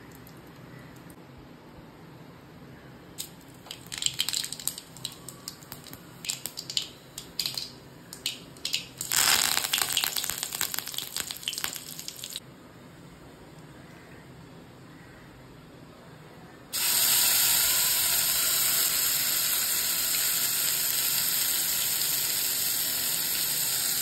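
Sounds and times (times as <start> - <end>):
leaves sizzling in hot oil: 3.2 - 12.4, 16.8 - 24.0
mustard seeds popping in oil: 3.2 - 12.4.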